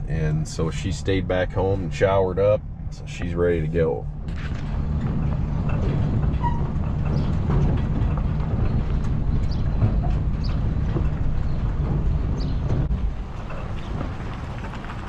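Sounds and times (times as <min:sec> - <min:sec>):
trailer rumbling over dirt: 0:00.0 - 0:15.0
clicks and knocks: 0:04.2 - 0:15.0.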